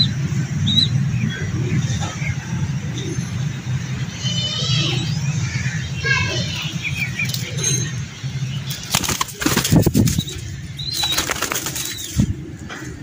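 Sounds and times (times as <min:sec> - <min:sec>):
pigeon wings flapping: 0:08.8 - 0:10.4, 0:11.0 - 0:12.1.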